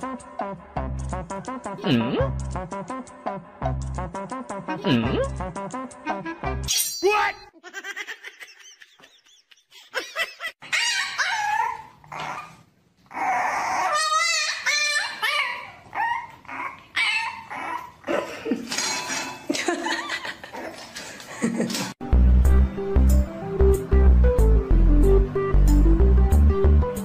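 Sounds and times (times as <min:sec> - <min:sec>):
puppy whining and yipping: 0:10.6 - 0:18.1.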